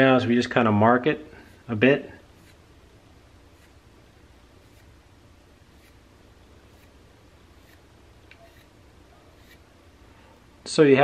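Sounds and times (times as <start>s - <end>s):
marker strokes on metal: 1.4s - 2.7s, 3.5s - 3.8s, 4.6s - 5.0s, 5.6s - 9.7s.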